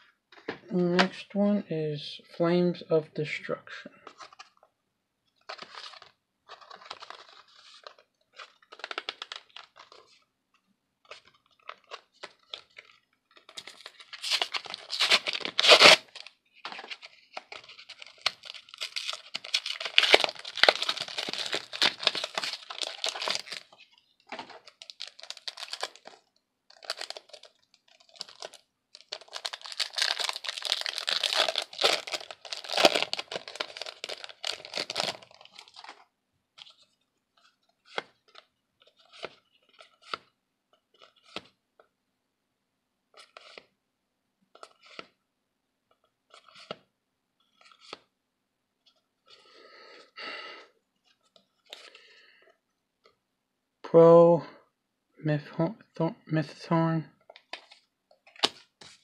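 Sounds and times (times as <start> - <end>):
foil wrapper tearing and crinkling: 5.5 - 10.0, 13.4 - 23.8, 24.4 - 36.0.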